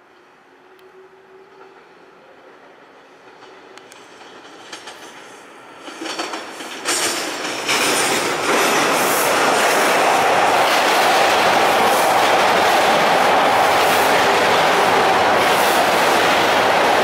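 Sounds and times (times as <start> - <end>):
subway train wheels on rails: 0.0 - 17.0.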